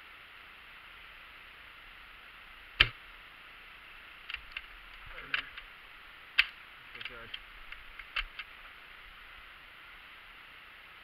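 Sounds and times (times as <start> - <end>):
loud sharp cracks: 6.4 - 8.5.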